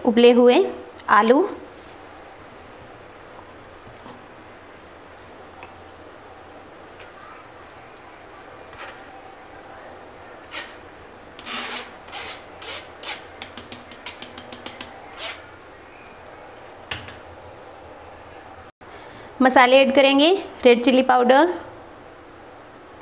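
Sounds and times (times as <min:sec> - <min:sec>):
metal strainer scraping bowl: 0:11.4 - 0:13.4.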